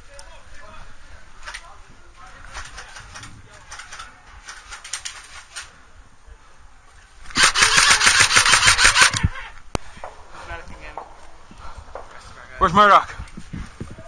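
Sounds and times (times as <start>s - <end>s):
airsoft rifle full-auto burst: 7.3s - 9.2s.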